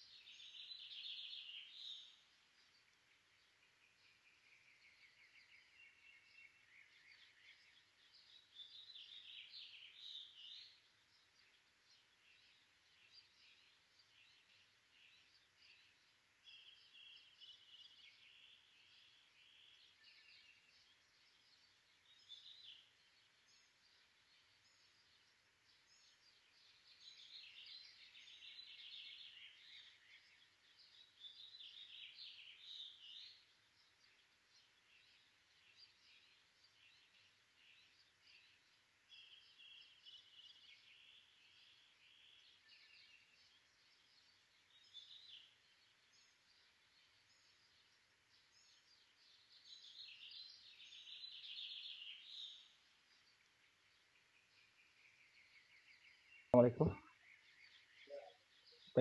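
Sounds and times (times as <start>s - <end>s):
birds chirping and trilling: 0.0s - 59.0s.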